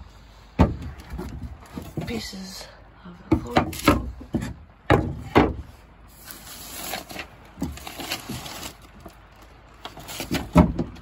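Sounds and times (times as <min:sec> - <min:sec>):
knocking on plywood boards: 0:00.6 - 0:02.2, 0:03.3 - 0:05.6
scraping across wood: 0:00.6 - 0:02.4, 0:03.3 - 0:11.0.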